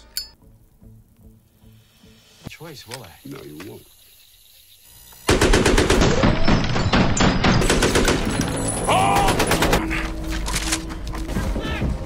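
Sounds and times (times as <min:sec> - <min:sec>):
rapid automatic gunfire: 0:05.3 - 0:08.3.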